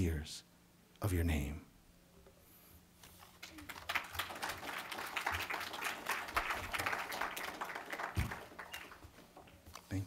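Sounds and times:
audience applauding: 3.4 - 9.5.

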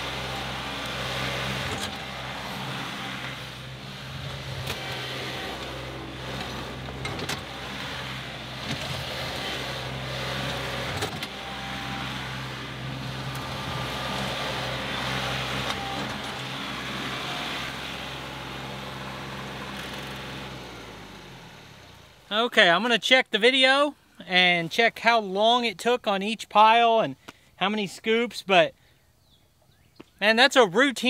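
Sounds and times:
clunks: 0.0 - 17.2
front loader digging dirt: 0.0 - 22.3
tractor diesel engine running: 0.0 - 22.9.

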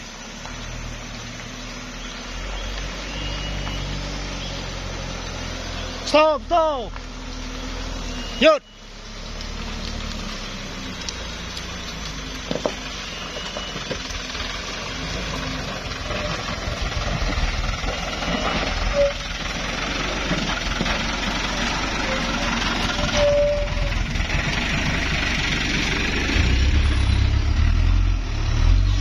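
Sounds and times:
truck engine under load: 0.0 - 29.0.

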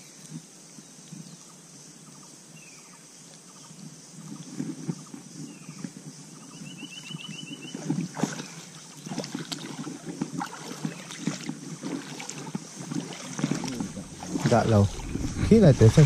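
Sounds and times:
boots splashing through water: 7.7 - 16.0.

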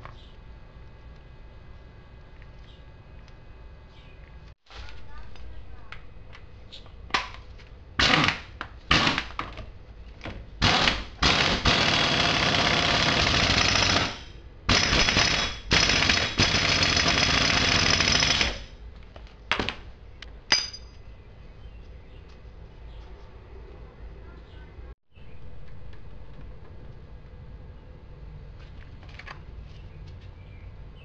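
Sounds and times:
impact wrench hammering: 10.6 - 18.7.

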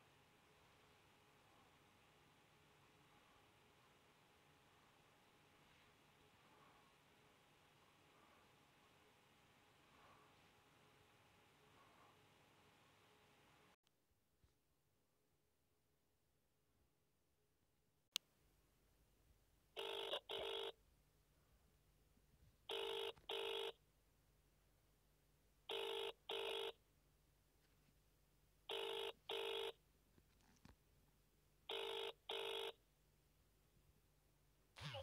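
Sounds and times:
phone ringback tone: 19.8 - 20.8, 22.7 - 23.8, 25.7 - 26.8, 28.7 - 29.8, 31.7 - 32.8.

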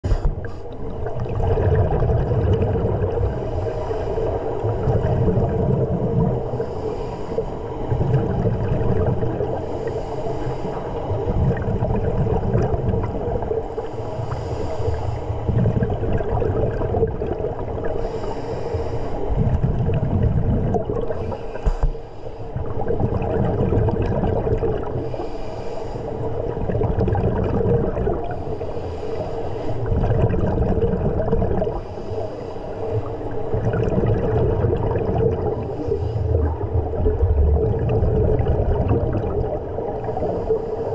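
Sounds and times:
exhaled air bubbling underwater: 0.0 - 40.9
regulator inhale hiss: 3.3 - 4.9, 6.4 - 8.0, 9.6 - 11.2, 13.7 - 15.5, 18.0 - 19.4, 21.1 - 22.6, 25.0 - 26.5, 28.3 - 29.9, 31.8 - 33.5, 35.6 - 36.6, 40.0 - 40.9.

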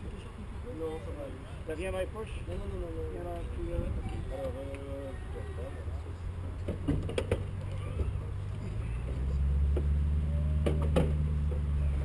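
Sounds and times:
low engine hum: 0.0 - 12.0
knocks and clicks of climbing: 6.6 - 8.3.

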